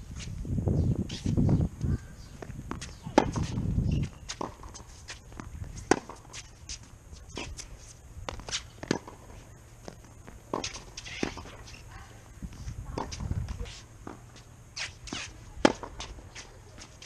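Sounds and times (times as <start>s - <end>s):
footsteps on court: 1.1s - 17.0s
tennis ball struck and bouncing: 2.4s - 6.4s, 8.3s - 9.3s, 10.5s - 11.9s, 12.9s - 16.5s.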